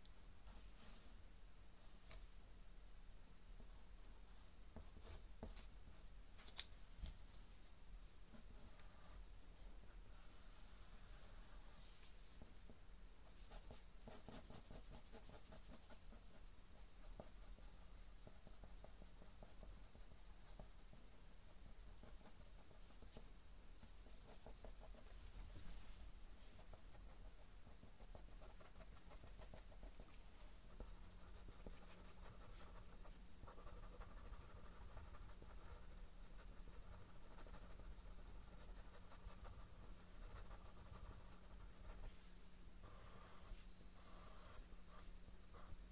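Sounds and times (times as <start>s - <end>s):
pencil scratching on paper: 13.3s - 25.2s, 26.4s - 45.8s.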